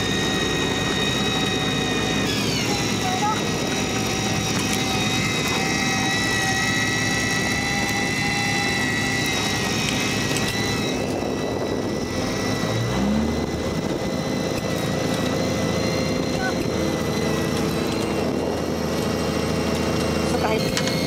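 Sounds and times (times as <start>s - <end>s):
boat engine drone: 0.0s - 21.0s
high whine: 0.0s - 21.0s
short rising tone: 12.1s - 14.3s.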